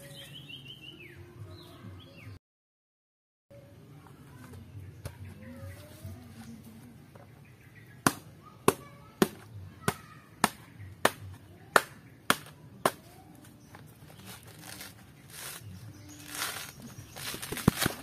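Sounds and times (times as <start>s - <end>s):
tool hitting coconut husk: 8.0s - 13.2s
husk fibres rustling and tearing: 14.0s - 18.0s.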